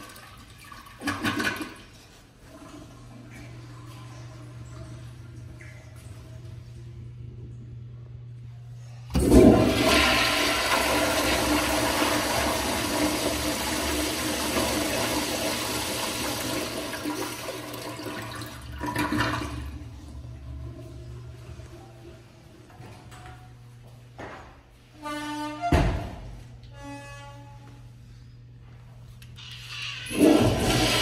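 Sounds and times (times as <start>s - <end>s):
toilet flushing water rush: 0.0s - 6.5s, 9.1s - 20.9s, 29.8s - 31.0s.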